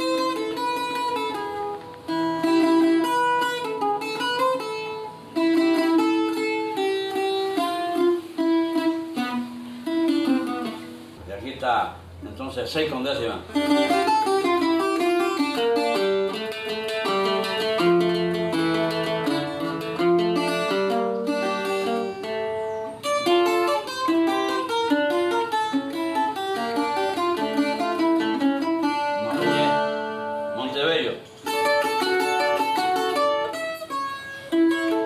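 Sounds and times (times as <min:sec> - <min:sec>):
cuatro picked melodic runs: 0:13.5 - 0:35.0.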